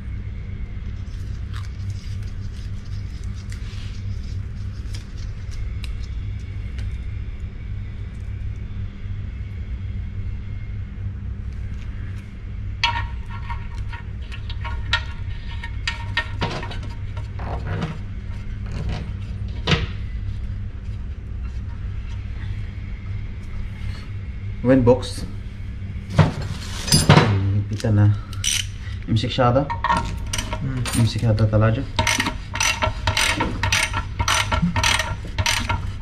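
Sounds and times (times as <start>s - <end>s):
steady low hum: 0.0s - 36.0s
small metal parts clinking: 32.0s - 35.8s.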